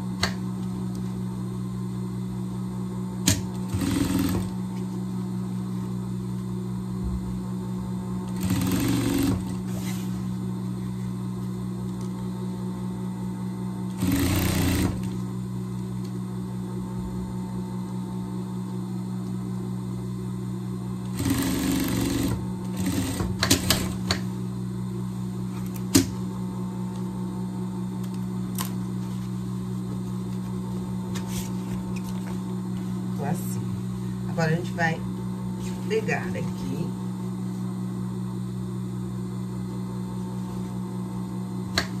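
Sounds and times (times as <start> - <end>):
steady low hum: 0.0 - 42.0
sewing machine stitching: 3.3 - 4.5, 8.3 - 9.6, 14.0 - 15.2, 21.1 - 24.0.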